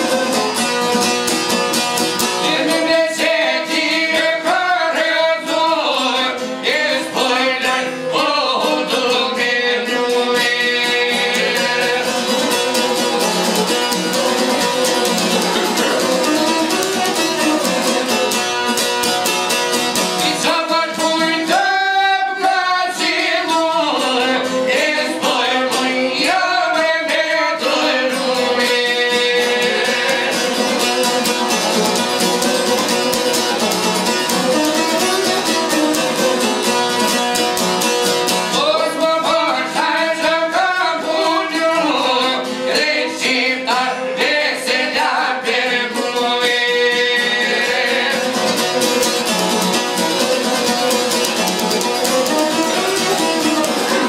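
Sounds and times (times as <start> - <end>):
men singing folk song: 2.2 - 18.8, 20.0 - 31.8, 38.3 - 50.9
plucked lutes: 11.1 - 21.6, 28.2 - 38.6, 48.3 - 54.0.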